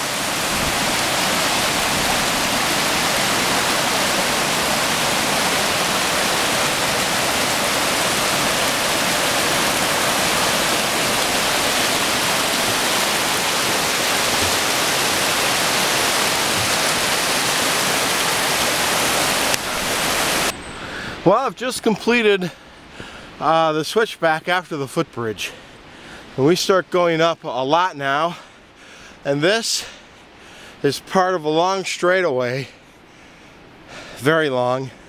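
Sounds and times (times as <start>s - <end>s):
creek rushing over rocks: 0.0s - 20.5s.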